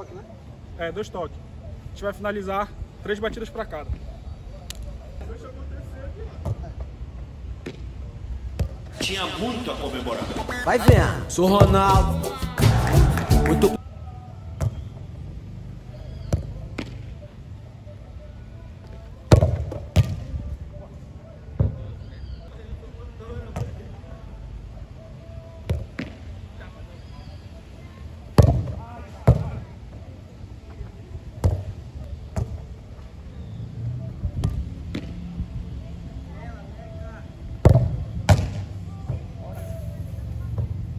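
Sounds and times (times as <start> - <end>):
football kick thump: 19.3 - 20.3, 28.4 - 29.6, 37.6 - 38.7.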